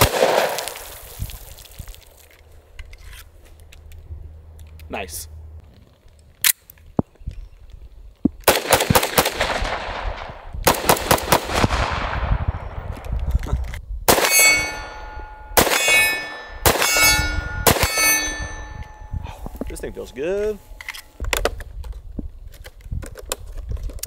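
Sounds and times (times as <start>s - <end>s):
pistol shots: 0.0s - 0.7s, 8.4s - 12.4s, 14.1s - 14.9s, 15.6s - 17.0s, 17.6s - 18.4s
steel target clanging: 14.1s - 21.1s.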